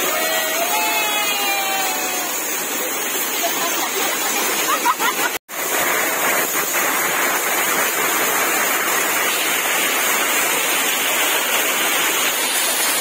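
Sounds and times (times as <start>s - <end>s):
waterfall over rocks: 0.0s - 13.0s.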